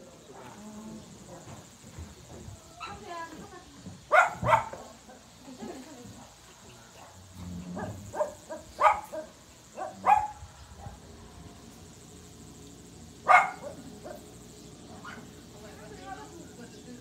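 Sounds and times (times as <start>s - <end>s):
dog barking: 4.1s - 4.8s, 7.8s - 11.0s, 13.2s - 14.3s, 15.0s - 15.3s.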